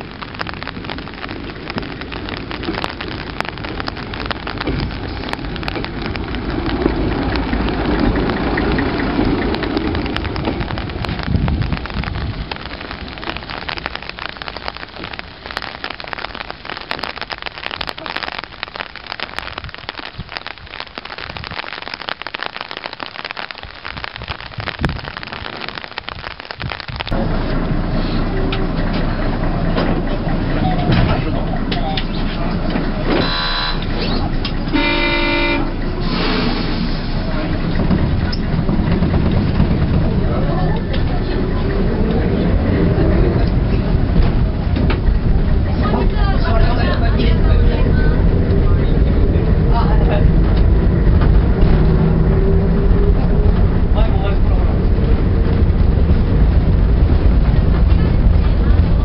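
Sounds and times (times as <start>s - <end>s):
steady rain: 0.0s - 59.0s
railbus diesel engine passing: 1.2s - 15.1s, 27.2s - 59.0s.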